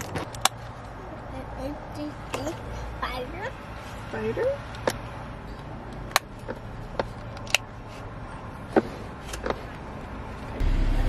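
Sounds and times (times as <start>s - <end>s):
low car rumble: 0.0s - 11.0s.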